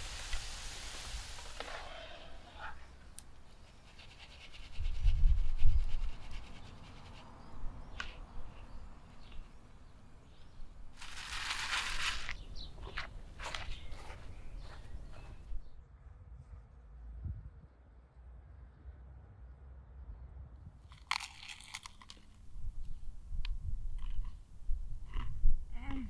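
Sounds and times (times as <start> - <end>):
scraping rustle: 10.9 - 15.4.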